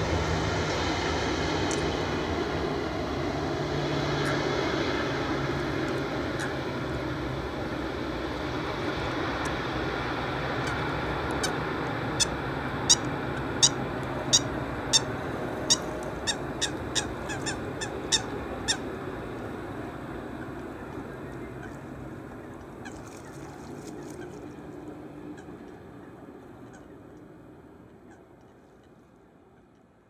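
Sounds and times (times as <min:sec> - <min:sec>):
jet engines rushing: 0:00.0 - 0:28.4
bird calling sharply: 0:12.9 - 0:18.8.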